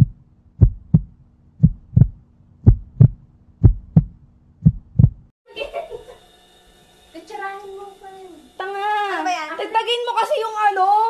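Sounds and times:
heartbeat thumping: 0.0 - 5.3.

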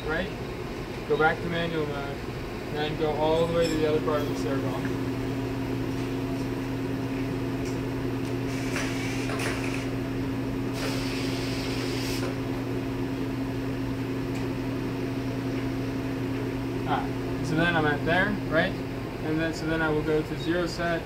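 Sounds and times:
milling machine electrical hum: 0.0 - 21.0
brief hissing noises: 10.8 - 12.3.

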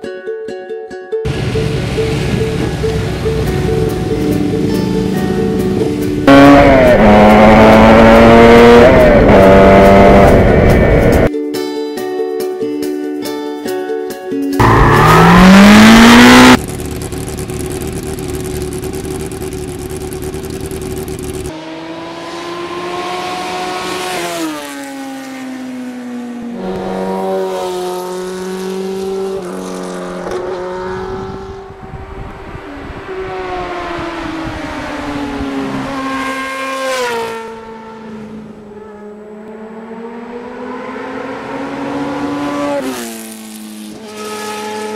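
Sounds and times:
loud rising swoosh: 14.6 - 16.6
motorcycle engine passing: 14.6 - 44.9.

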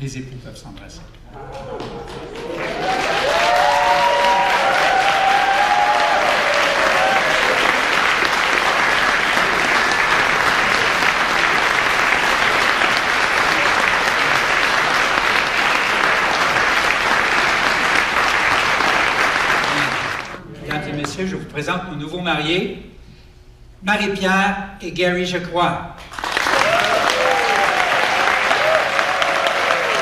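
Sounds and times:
crowd applauding: 1.4 - 20.8, 26.0 - 30.0.

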